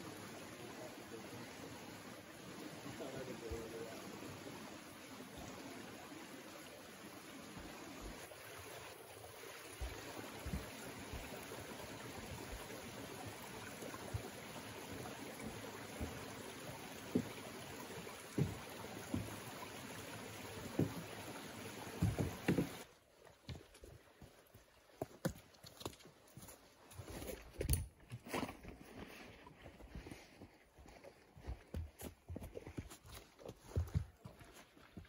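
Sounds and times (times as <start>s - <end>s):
stream running over rocks: 0.0s - 35.0s
footsteps on wooden footbridge: 9.4s - 11.7s, 15.0s - 19.8s, 20.6s - 21.2s, 21.9s - 35.0s.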